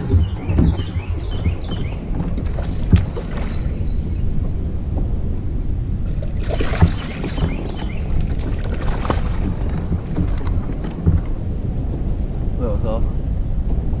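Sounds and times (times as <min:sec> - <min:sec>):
sharp knocks: 0:00.0 - 0:03.8, 0:06.5 - 0:11.4
wind rumble on microphone: 0:00.0 - 0:14.0
fish splashing at surface: 0:02.2 - 0:03.8, 0:06.1 - 0:10.8.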